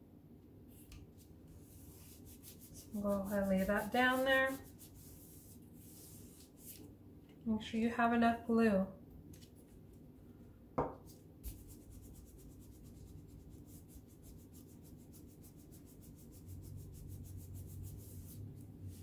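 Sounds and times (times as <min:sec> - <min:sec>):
hands rubbing paper: 0:00.8 - 0:06.9, 0:11.1 - 0:19.0.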